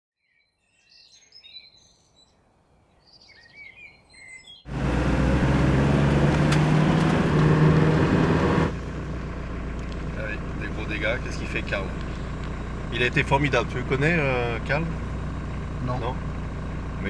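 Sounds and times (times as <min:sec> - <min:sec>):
small birds chirping: 0:00.2 - 0:04.7, 0:09.2 - 0:14.1
car engine and road noise: 0:04.6 - 0:17.0.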